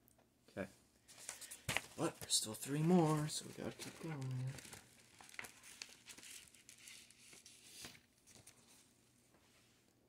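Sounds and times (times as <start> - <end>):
cardboard record jacket rustling: 1.2 - 8.9.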